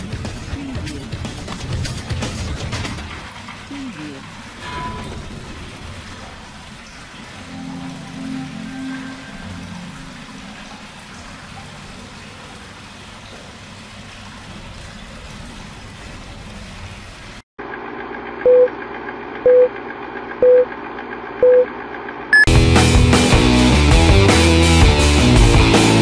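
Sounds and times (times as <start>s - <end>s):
short countdown beeps: 20.4s - 20.6s.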